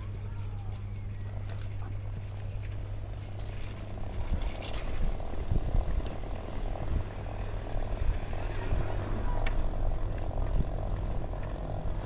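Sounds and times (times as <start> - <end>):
tyres rolling on asphalt: 0.0 - 12.0
wind buffeting microphone: 3.9 - 12.0.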